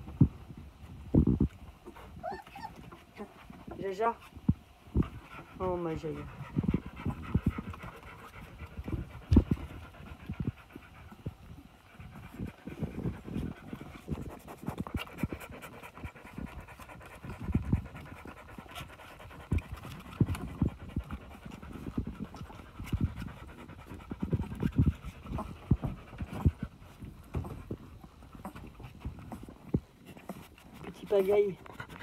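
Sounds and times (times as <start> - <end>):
dog panting: 1.8 - 32.0
soft low thumps and clicks: 6.5 - 10.8.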